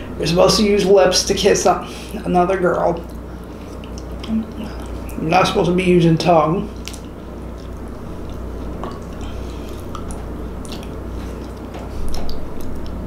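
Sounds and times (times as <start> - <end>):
steady low hum: 0.0 - 13.0
wet chewing and lip-smacking: 3.0 - 5.2, 6.7 - 13.0.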